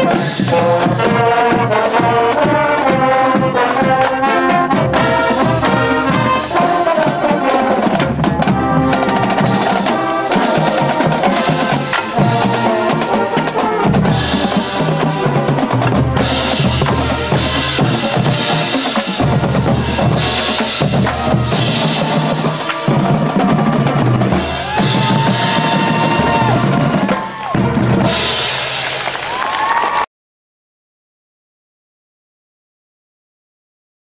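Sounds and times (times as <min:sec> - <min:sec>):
snare drum rolls: 0:00.0 - 0:30.0
bass drums: 0:07.8 - 0:29.3.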